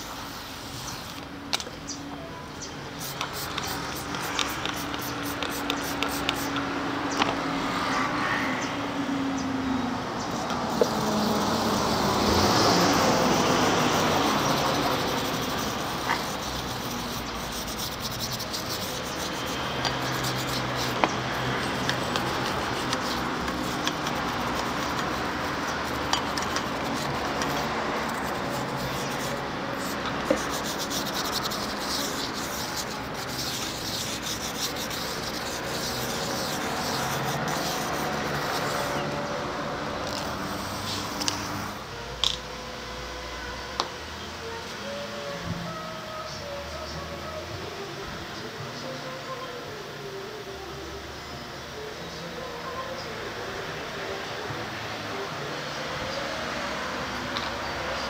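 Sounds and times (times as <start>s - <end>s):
passing vehicle: 0.0s - 47.1s
plastic brush scrubbing tyre: 3.0s - 6.6s, 10.6s - 39.2s, 40.1s - 41.7s
spray bottle spritzes: 3.0s - 6.6s, 13.7s - 39.0s.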